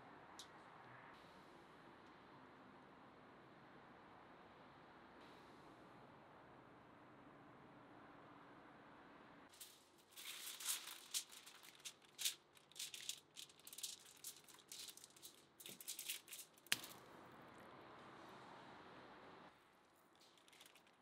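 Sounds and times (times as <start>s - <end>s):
roast chicken skin crackling: 10.0s - 17.0s.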